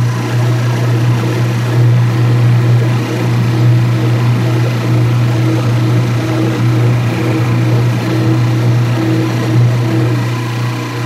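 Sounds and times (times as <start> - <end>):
washing machine motor humming: 0.0 - 11.0.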